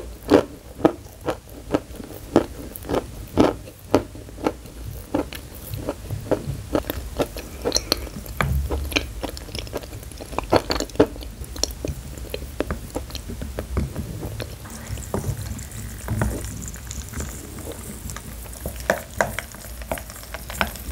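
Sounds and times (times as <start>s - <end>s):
chalk being chewed and crunched: 0.2s - 13.7s.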